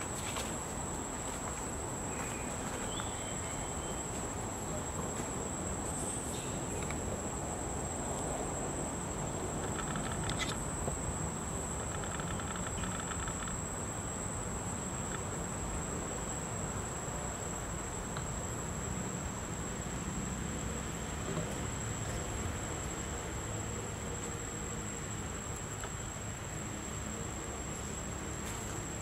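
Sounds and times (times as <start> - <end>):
high-pitched insect drone: 5.6 - 21.0
rapid chirping trills: 9.6 - 14.3.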